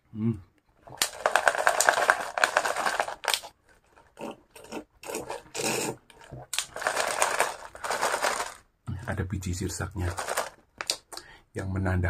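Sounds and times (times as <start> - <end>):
plastic bag crinkling: 0.9 - 4.1, 6.6 - 8.6, 10.0 - 11.0
sipping through a straw: 4.6 - 6.4.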